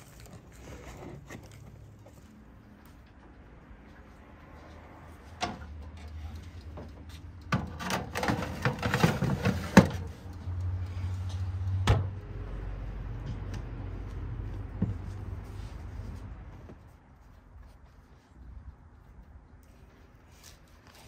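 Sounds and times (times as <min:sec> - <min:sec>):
objects knocking and clattering: 0:06.7 - 0:10.2.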